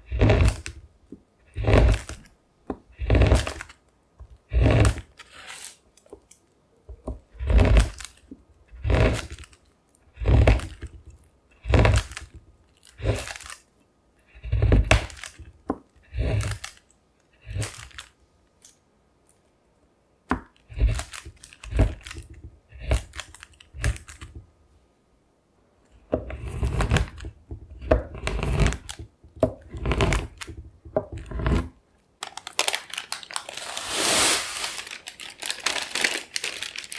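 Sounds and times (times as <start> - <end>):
knife chopping chocolate: 0.0 - 0.8, 1.5 - 3.7, 20.3 - 23.2.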